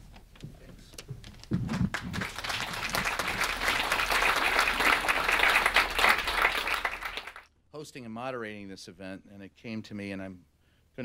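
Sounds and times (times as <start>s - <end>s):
audience applauding: 1.7s - 7.4s.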